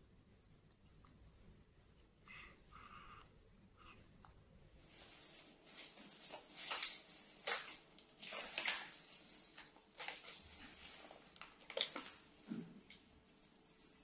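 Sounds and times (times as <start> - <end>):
plastic and paper crinkling: 4.8 - 12.5.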